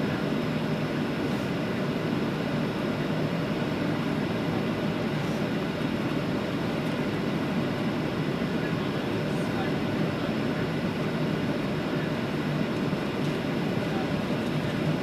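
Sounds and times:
airplane cabin engine and airflow rush: 0.0 - 15.0.

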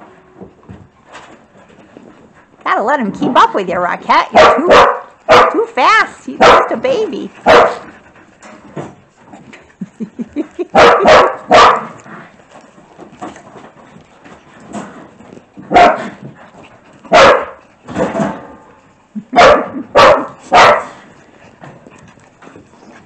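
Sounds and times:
dogs barking: 4.3 - 5.7, 6.4 - 6.8, 7.4 - 7.9, 10.7 - 12.1, 15.7 - 16.2, 17.1 - 17.6, 19.3 - 21.0.

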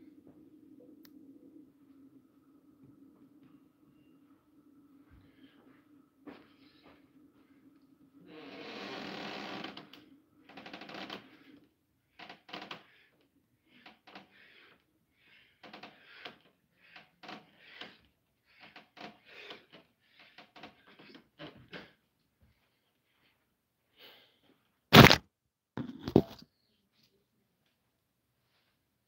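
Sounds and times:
person breathing hard: 12.8 - 21.2.

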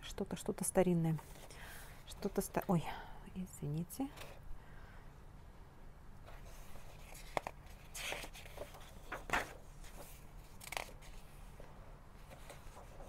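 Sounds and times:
book pages turning: 6.2 - 13.0.

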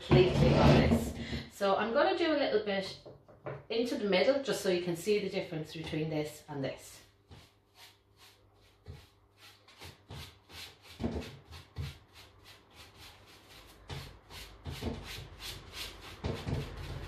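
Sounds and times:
paintbrush swishing on wood: 7.2 - 17.0.

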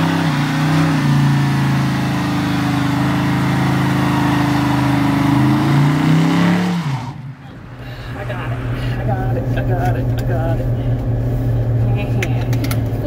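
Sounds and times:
engine revving high: 0.0 - 10.0.

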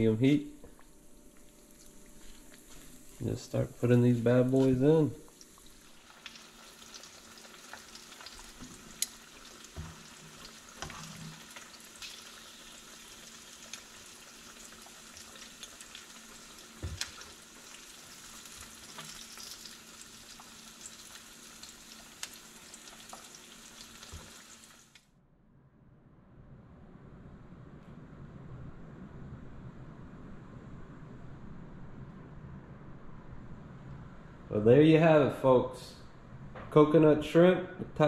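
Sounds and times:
shrimp sizzling in hot oil: 5.3 - 25.0.

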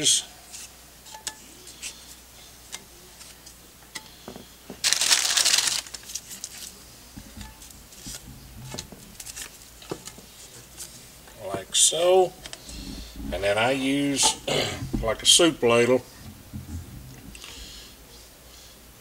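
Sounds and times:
plastic sleeve crinkling: 4.8 - 11.0.

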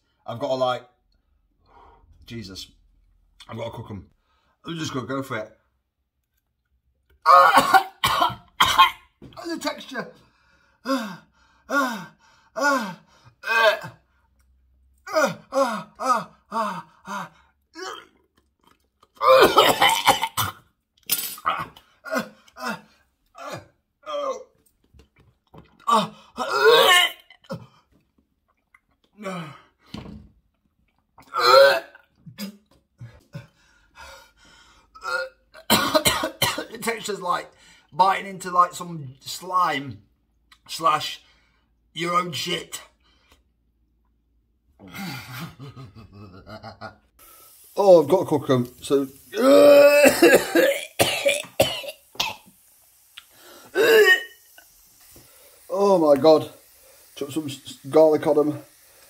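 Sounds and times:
man gagging and retching: 7.2 - 9.4, 13.4 - 14.0, 15.0 - 29.6, 30.9 - 32.7, 35.0 - 36.7, 48.8 - 52.6, 53.2 - 54.7
man coughing: 7.3 - 9.0, 19.2 - 22.8, 35.1 - 36.8, 49.4 - 52.4, 53.8 - 54.3.

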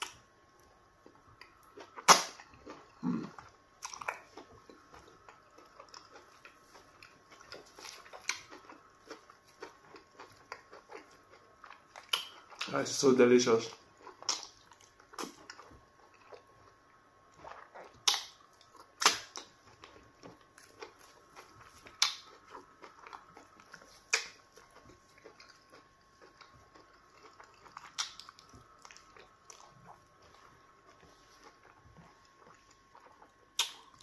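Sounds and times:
soft chewing: 0.0 - 34.0
wet mouth smacks: 17.9 - 18.4, 33.6 - 34.0.

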